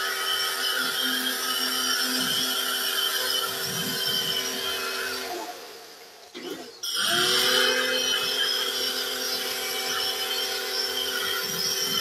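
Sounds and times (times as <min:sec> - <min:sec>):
pressure washer motor whining: 0:06.8 - 0:12.0.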